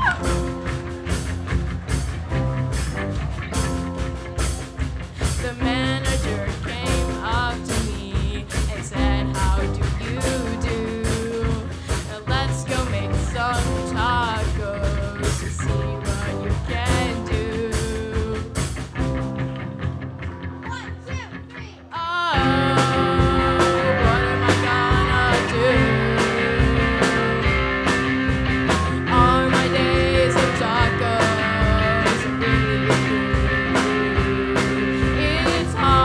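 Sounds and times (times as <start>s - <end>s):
bass guitar: 0.0s - 36.0s
drums keeping a steady beat: 0.0s - 36.0s
electric guitar: 0.0s - 36.0s
girl singing lead: 5.2s - 18.7s, 20.6s - 27.7s, 29.0s - 36.0s.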